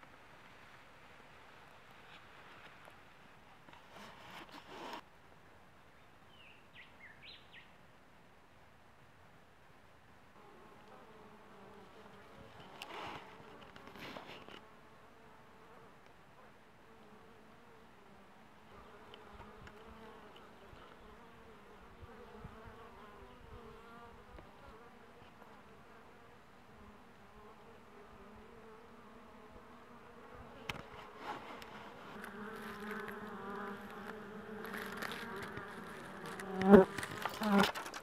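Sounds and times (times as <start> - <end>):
honeybees buzzing: 17.0 - 38.0.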